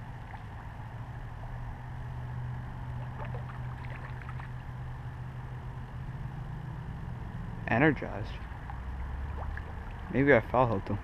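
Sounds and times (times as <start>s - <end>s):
steady low hum: 0.0s - 11.0s
fish splashing at water surface: 3.0s - 4.6s, 8.7s - 10.1s.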